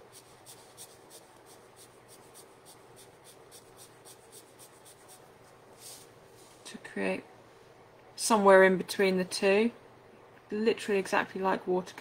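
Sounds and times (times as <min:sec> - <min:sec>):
brush strokes on paper: 0:00.0 - 0:06.7.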